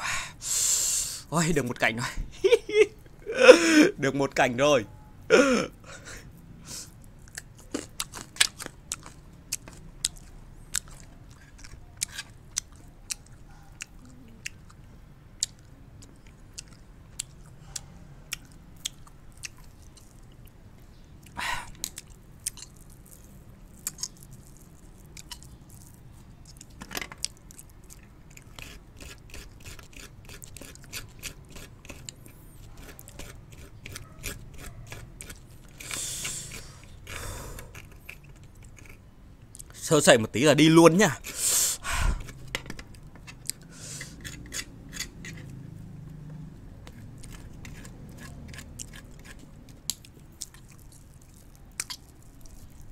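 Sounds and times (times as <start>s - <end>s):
person crunching hard candy: 6.7s - 13.4s, 21.2s - 39.0s, 46.8s - 52.9s.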